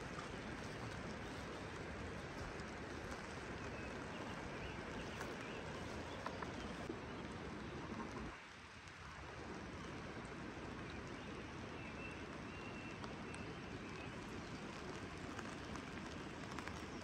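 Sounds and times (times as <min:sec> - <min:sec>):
steady rain hiss: 0:00.0 - 0:17.0
single raindrop ticks: 0:12.4 - 0:17.0.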